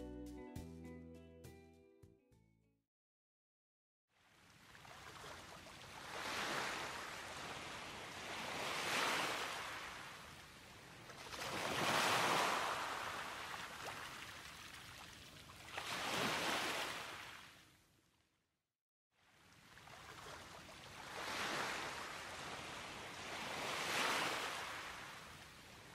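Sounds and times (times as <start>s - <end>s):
waves breaking on a beach: 4.2s - 17.6s, 19.2s - 25.9s.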